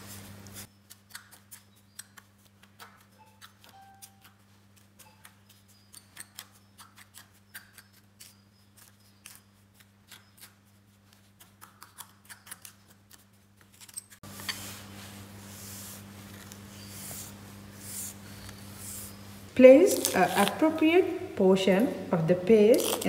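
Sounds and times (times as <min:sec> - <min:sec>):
steady low hum: 0:14.2 - 0:23.0.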